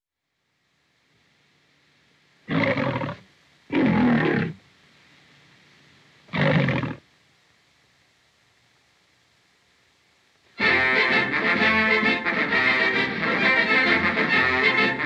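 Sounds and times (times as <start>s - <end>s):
faint steady hiss: 0.0s - 15.0s
lion roaring: 2.5s - 4.6s, 6.3s - 7.0s.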